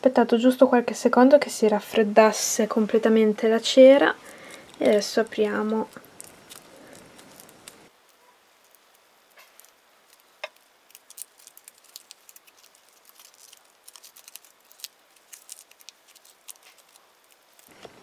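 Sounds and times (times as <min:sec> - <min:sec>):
foil crinkling: 0:04.1 - 0:18.0.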